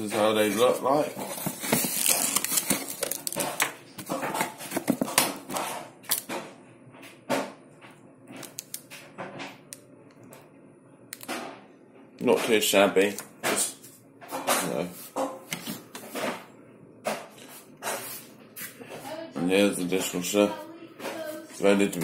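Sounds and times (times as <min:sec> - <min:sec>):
plastic wrapper crinkling: 0:01.2 - 0:03.7.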